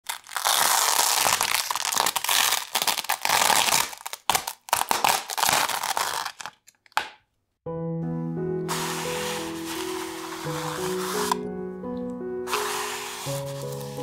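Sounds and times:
plastic film being peeled off: 0.0 - 6.7, 8.7 - 11.5, 12.5 - 14.0.

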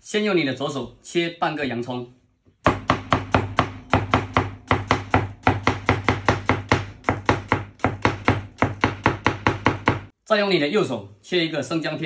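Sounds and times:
cleaver chopping onion on board: 2.7 - 10.1.

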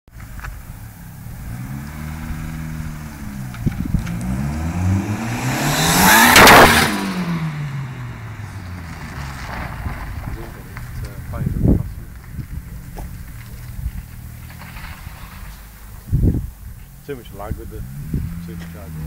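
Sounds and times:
car engine accelerating past: 1.0 - 11.0.

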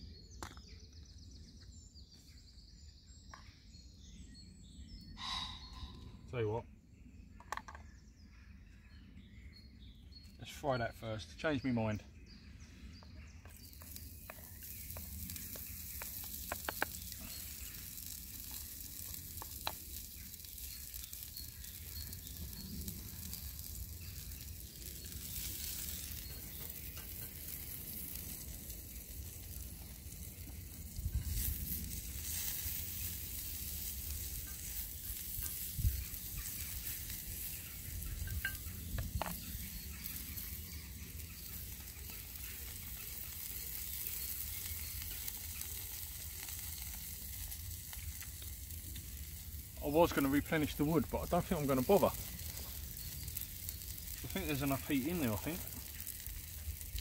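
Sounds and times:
food sizzling in a pan: 13.5 - 57.0.

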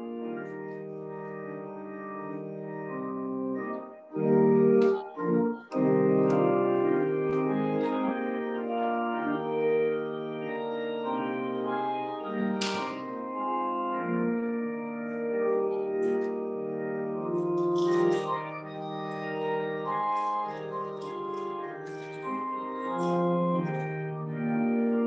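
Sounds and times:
church organ chords: 0.0 - 25.0.

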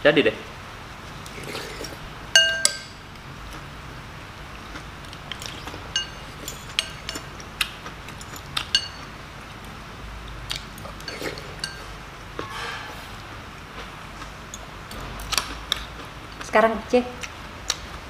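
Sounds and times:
slurping soup: 1.2 - 2.0, 10.8 - 11.6
cutlery clinking on ceramic bowls: 1.5 - 3.0, 5.3 - 7.4, 8.1 - 9.1, 10.9 - 11.9.

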